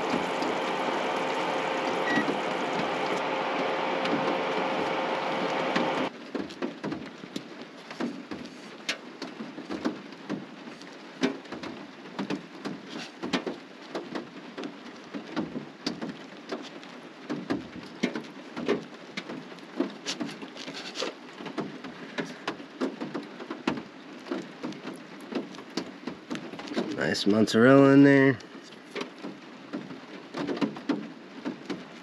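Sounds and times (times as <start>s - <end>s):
rain pattering: 0.0s - 32.0s.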